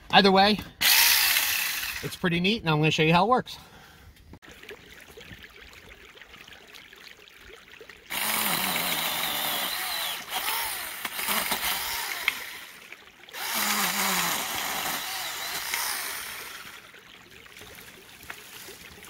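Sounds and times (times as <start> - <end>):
electric chainsaw cutting branch: 0.8 - 2.2, 8.1 - 16.8.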